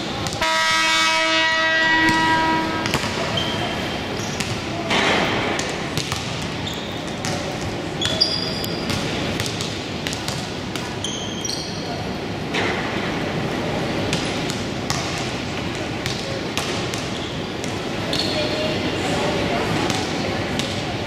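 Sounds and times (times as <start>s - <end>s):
basketballs bouncing: 0.0s - 0.4s, 1.9s - 11.3s, 14.1s - 18.4s
crowd chatter: 0.0s - 21.0s
scoreboard horn buzzing: 0.4s - 3.1s
sneakers squeaking on court: 1.9s - 4.8s, 5.5s - 12.0s, 16.0s - 18.8s.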